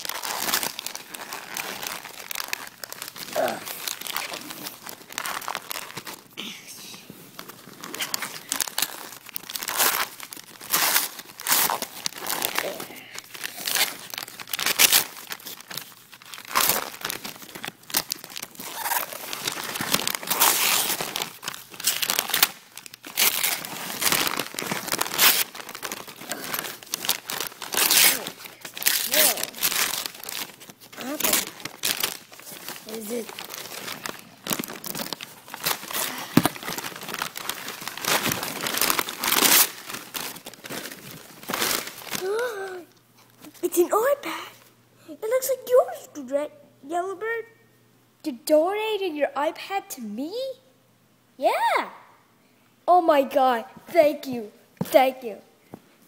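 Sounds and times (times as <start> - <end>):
wrapping paper crumpling and tearing: 0.0 - 44.2.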